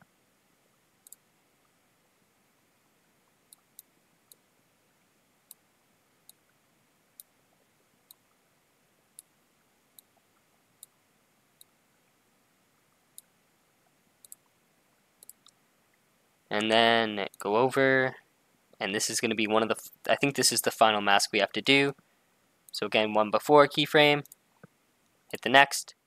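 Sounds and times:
computer mouse clicking: 1.0s - 1.2s, 14.2s - 14.5s, 15.2s - 15.6s.

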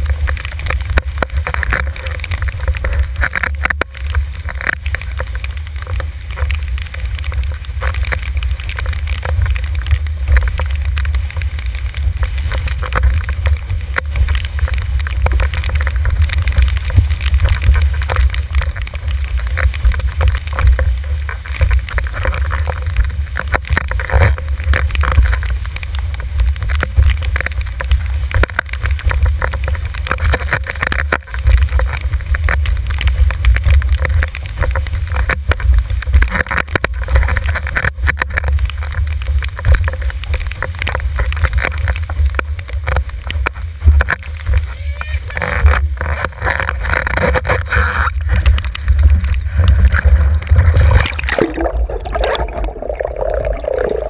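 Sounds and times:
board slapping water: 0.0s - 54.0s
rushing water hiss: 38.4s - 54.0s.

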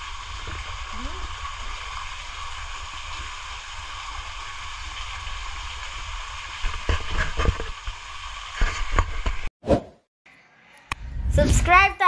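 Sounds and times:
rushing water hiss: 0.0s - 9.2s.

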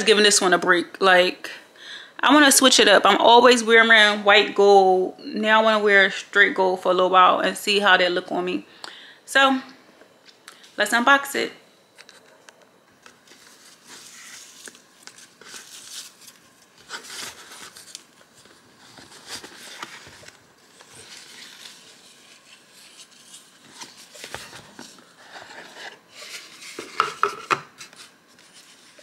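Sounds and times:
ribbon and cardboard rustling: 13.1s - 29.0s.

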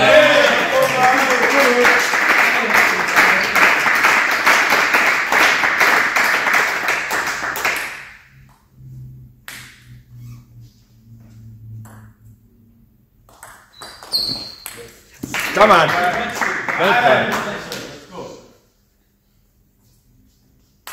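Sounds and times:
people clapping: 0.0s - 8.6s, 13.2s - 18.1s.

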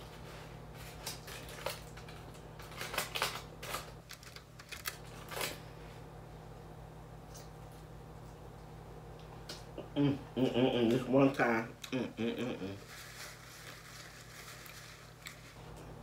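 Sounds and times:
aluminium foil crinkling: 0.8s - 5.6s, 12.8s - 15.6s.

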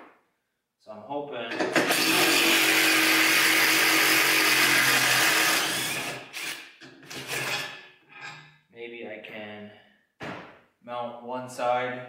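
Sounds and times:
power drill whining: 1.7s - 7.6s.

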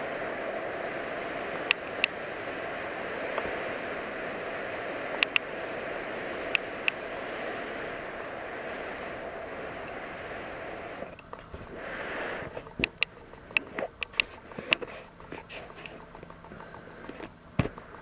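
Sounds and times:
sharp clicks: 5.2s - 5.5s, 12.6s - 18.0s.

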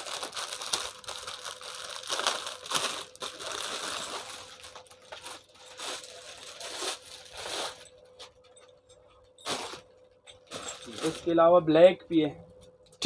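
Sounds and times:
plastic packaging crinkling: 0.0s - 8.4s, 9.4s - 11.4s.

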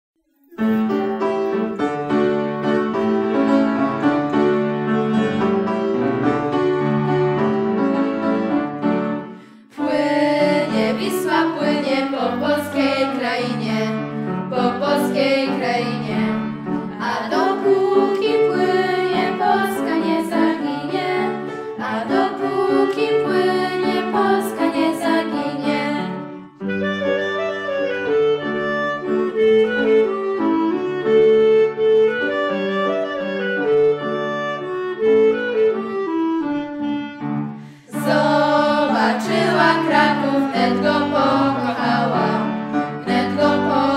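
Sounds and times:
piano accompaniment: 0.4s - 43.9s
clarinet playing dance music: 26.3s - 40.2s.

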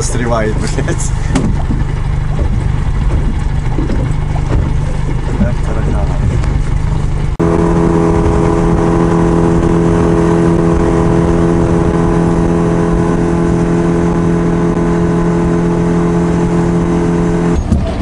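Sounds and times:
outboard motor running: 0.0s - 18.0s.

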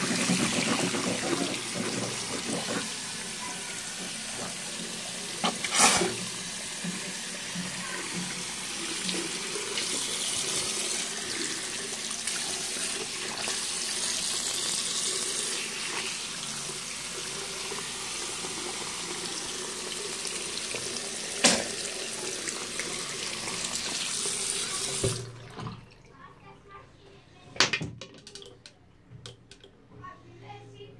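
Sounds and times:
tap water splashing over hands: 21.4s - 21.8s, 24.7s - 25.9s.

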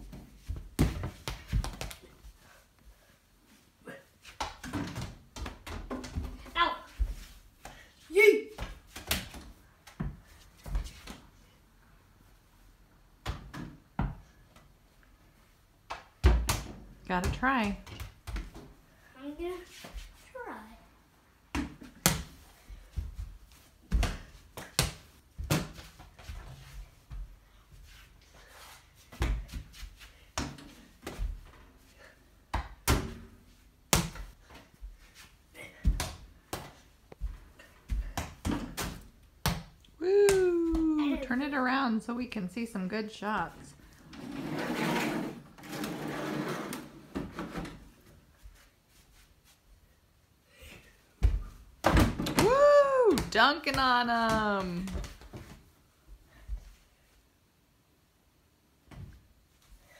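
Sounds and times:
ball bouncing on hard floor: 0.1s - 2.0s, 15.9s - 18.6s.

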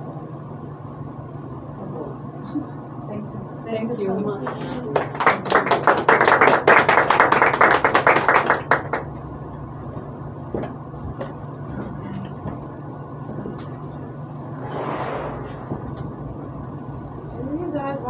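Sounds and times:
audience applauding: 4.9s - 9.1s
low hum: 14.3s - 17.4s.

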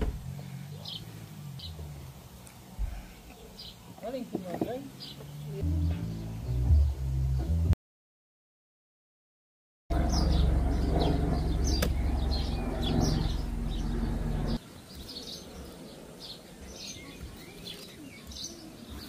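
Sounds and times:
birds chirping: 0.0s - 7.7s, 9.9s - 19.0s
loud low hum: 5.4s - 7.8s, 9.9s - 14.6s.

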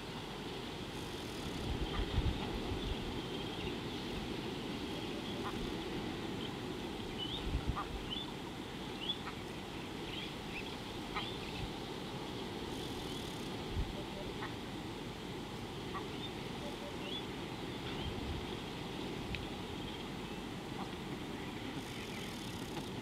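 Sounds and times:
birds chirping: 8.9s - 14.6s, 15.9s - 22.9s.

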